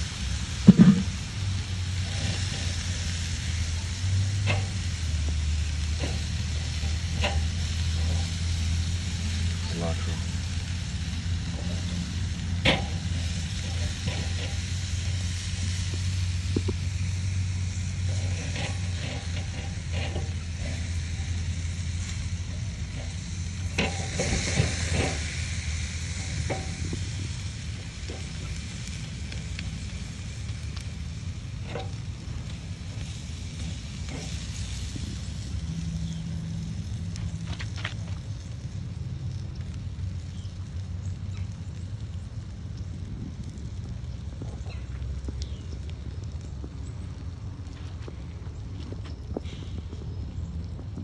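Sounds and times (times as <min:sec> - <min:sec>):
low hum: 0:00.0 - 0:51.0
low steady rumble: 0:00.0 - 0:51.0
meat sizzling on a grill: 0:00.0 - 0:51.0
knocks and clatter on grill grate: 0:00.4 - 0:38.7.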